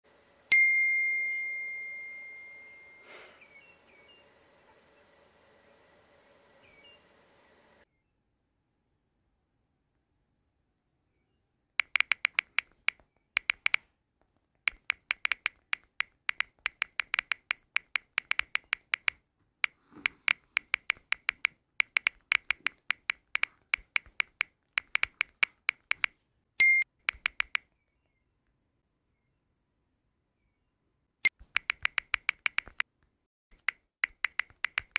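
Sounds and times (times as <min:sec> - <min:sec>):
phone keyboard tapping clicks: 0:11.8 - 0:27.8, 0:31.2 - 0:32.9, 0:33.5 - 0:34.9.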